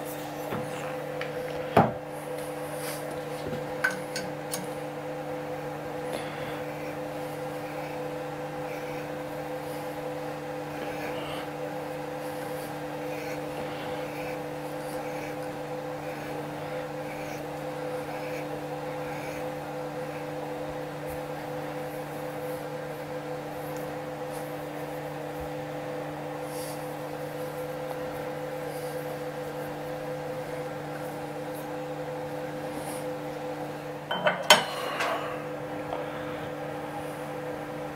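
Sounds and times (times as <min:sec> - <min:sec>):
electric machine hum: 0:00.0 - 0:37.9.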